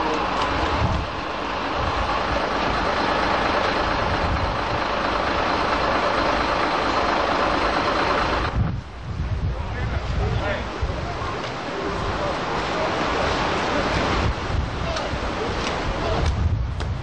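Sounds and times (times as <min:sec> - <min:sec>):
diesel engine running: 0:00.0 - 0:08.9.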